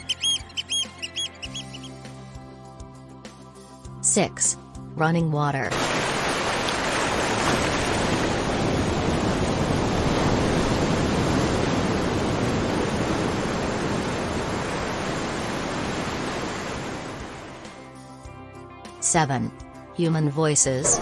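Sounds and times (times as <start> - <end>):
stream water rushing: 5.7 - 17.8.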